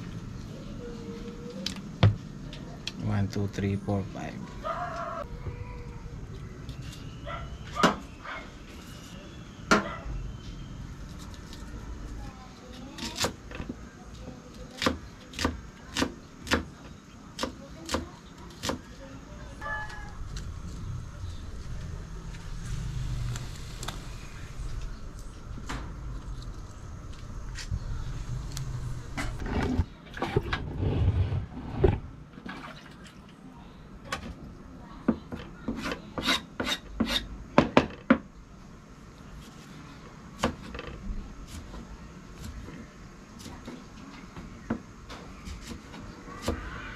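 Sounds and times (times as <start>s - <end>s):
low rumble: 19.8s - 29.9s.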